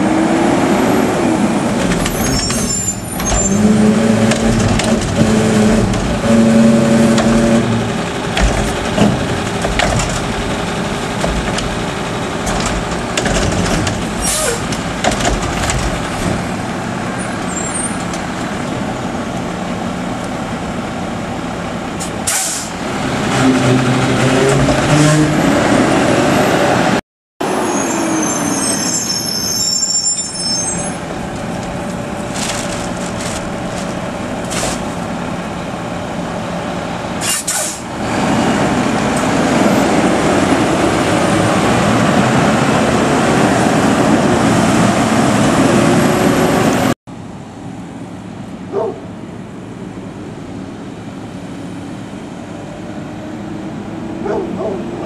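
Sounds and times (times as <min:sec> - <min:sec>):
diesel engine droning: 0:00.0 - 0:55.0
air brake hisses: 0:22.3 - 0:22.7, 0:37.2 - 0:37.8.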